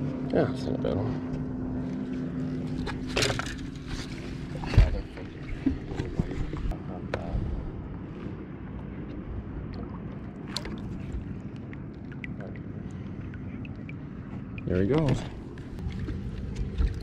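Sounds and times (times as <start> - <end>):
water splashing: 9.6 - 17.0.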